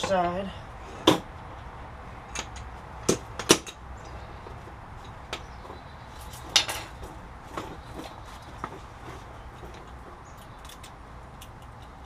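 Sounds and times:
tools clinking on metal: 6.2s - 7.0s.

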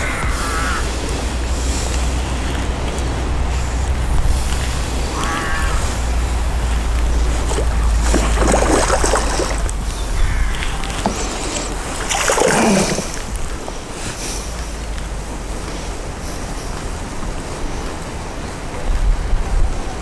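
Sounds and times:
wind rumble on microphone: 0.0s - 12.0s, 13.0s - 20.0s
fish splashing and thrashing: 6.4s - 13.9s.

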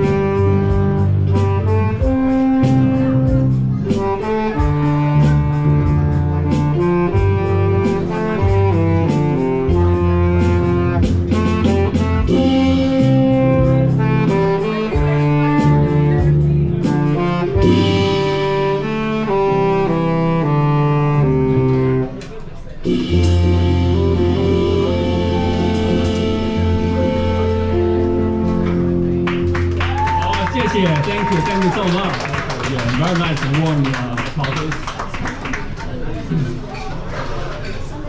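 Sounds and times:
steady beat: 0.0s - 19.6s
saxophone melody: 0.0s - 31.4s
electronic keyboards: 0.0s - 34.7s
bass: 0.0s - 38.0s.

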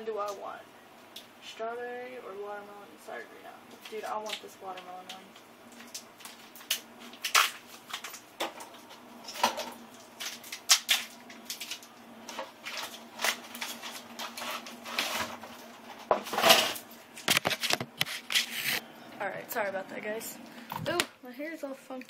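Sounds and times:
plastic wrappers crinkling: 3.8s - 18.8s.

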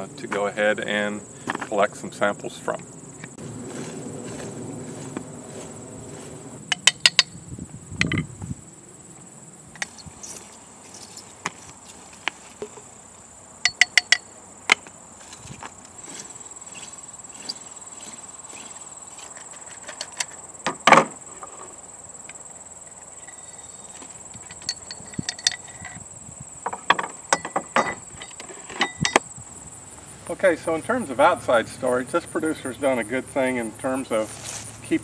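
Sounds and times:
high-pitched insect drone: 2.2s - 35.0s
hay probe clicks and scrapes: 9.8s - 12.9s, 13.7s - 20.4s, 21.4s - 26.0s.

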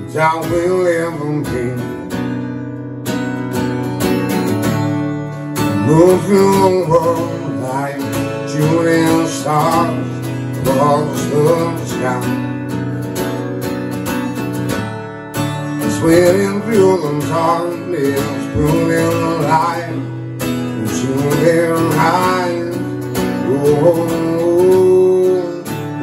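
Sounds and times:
man singing: 0.0s - 2.2s, 5.6s - 12.7s, 15.6s - 26.0s
acoustic guitar strumming: 0.0s - 26.0s.

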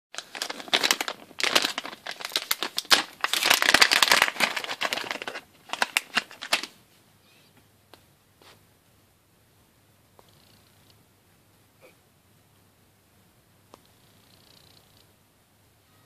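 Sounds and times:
plastic bag crinkling: 0.2s - 6.8s.

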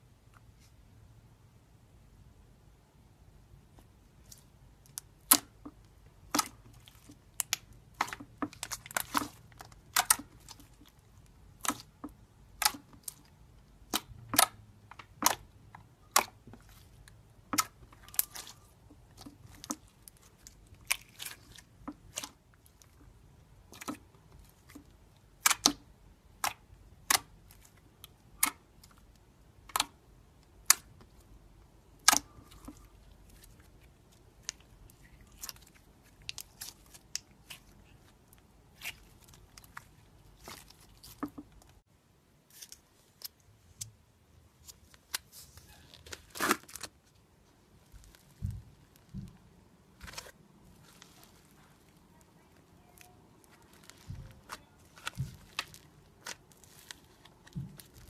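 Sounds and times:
slime clicking and popping: 4.9s - 23.0s, 24.6s - 31.2s.

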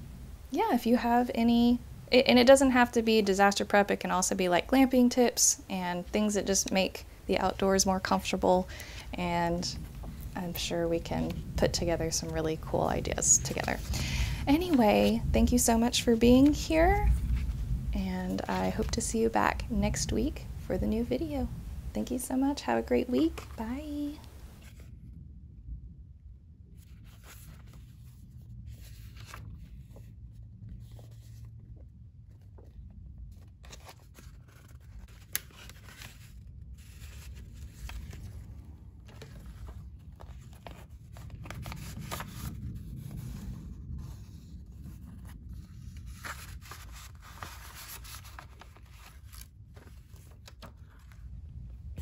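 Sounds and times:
paper rustling and scraping: 6.5s - 20.2s, 22.9s - 24.9s, 26.8s - 51.3s.

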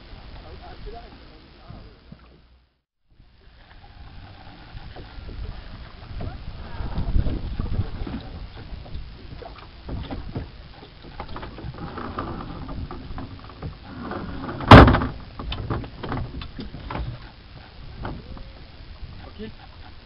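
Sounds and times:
knocks and clatter in wooden boat: 4.0s - 20.0s
loud thump: 14.7s - 15.2s.

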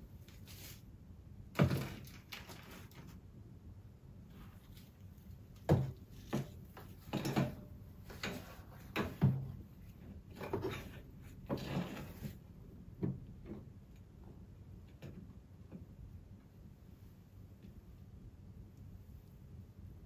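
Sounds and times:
knocks and clunks on a desk: 5.6s - 9.6s, 13.0s - 13.7s.

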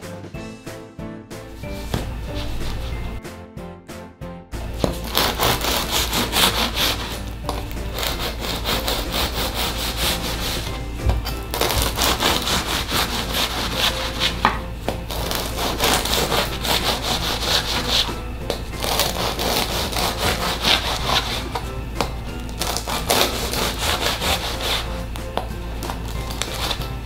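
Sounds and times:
bread knife sawing crusty bread: 4.8s - 21.8s, 22.5s - 27.0s.

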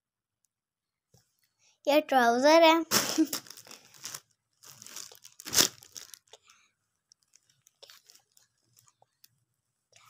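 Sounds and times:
packaging crinkling: 2.9s - 6.4s, 7.1s - 9.1s.

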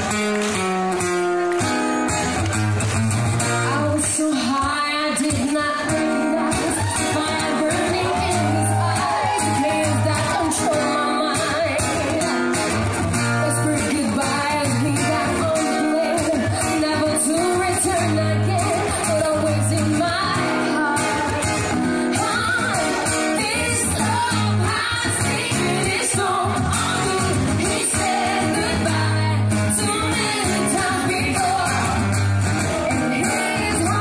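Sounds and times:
guitar: 0.0s - 34.0s
person singing lead vocal: 3.7s - 34.0s
bass line: 6.0s - 10.6s.

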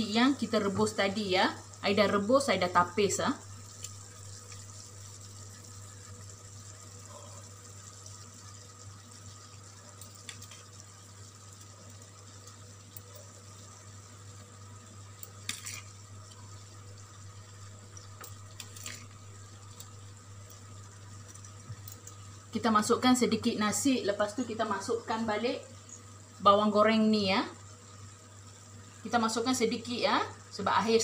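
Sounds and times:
low hiss of food cooking in wok: 0.0s - 31.0s
spoon scraping: 15.3s - 16.0s.

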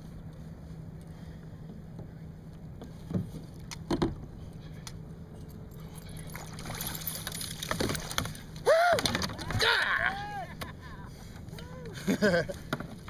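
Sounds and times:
water splashing and sloshing: 5.8s - 10.0s.

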